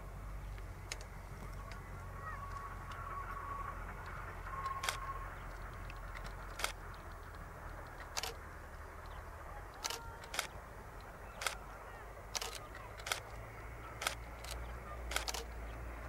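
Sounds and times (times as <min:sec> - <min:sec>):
faint low rumble: 0:00.0 - 0:16.0
camera shutters clicking: 0:05.9 - 0:06.8, 0:07.9 - 0:08.4, 0:09.7 - 0:10.6, 0:11.4 - 0:11.6, 0:12.3 - 0:13.4, 0:14.0 - 0:15.5.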